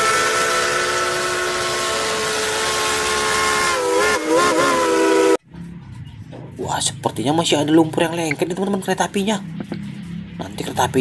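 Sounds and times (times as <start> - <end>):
steam locomotive whistle: 0.0 - 5.4.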